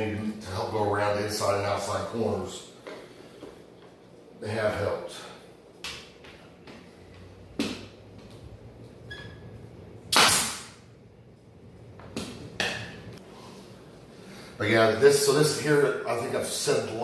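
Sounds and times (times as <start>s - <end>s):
pneumatic nail gun shots: 10.1s - 10.8s.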